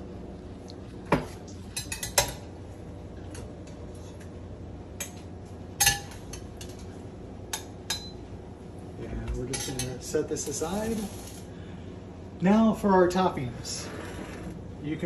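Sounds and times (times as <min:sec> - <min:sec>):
metal spoon clinking on dishes: 0:07.5 - 0:08.2.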